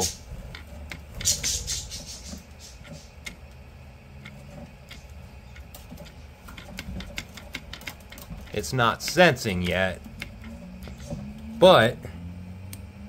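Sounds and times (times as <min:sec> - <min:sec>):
filament clicking in tubes: 0:04.2 - 0:11.4.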